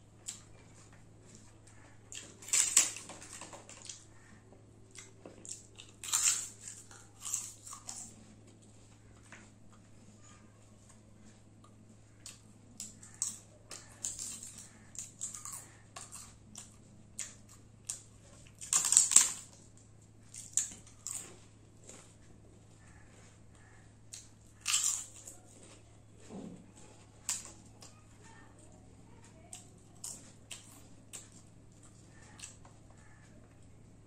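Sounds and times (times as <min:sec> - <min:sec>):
papad crunching and crackling: 0:18.3 - 0:19.8.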